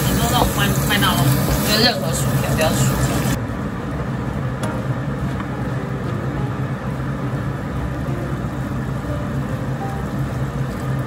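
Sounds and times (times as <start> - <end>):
ribs sizzling in a wok: 0.0 - 3.9
steady low hum: 0.0 - 11.0.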